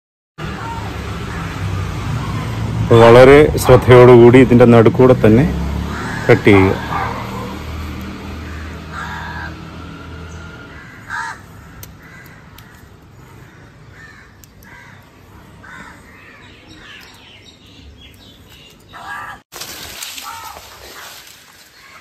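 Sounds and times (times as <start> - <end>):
crows cawing: 1.3 - 1.7, 5.8 - 9.8, 10.6 - 17.1, 19.0 - 19.4, 20.2 - 21.1, 21.8 - 22.0.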